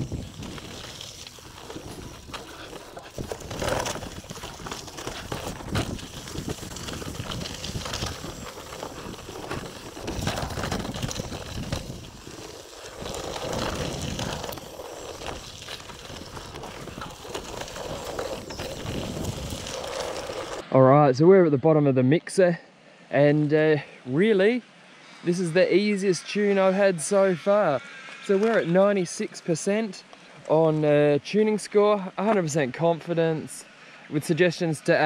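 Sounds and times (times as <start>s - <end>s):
tyres rolling over loose ground: 0.0s - 20.7s.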